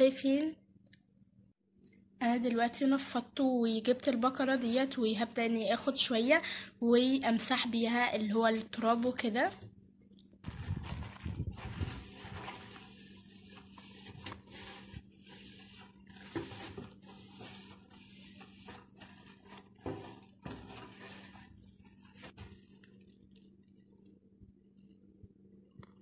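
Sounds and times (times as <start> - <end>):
faint steady hum: 0.0 - 26.0
paper towel rubbing a drawer: 10.6 - 22.8.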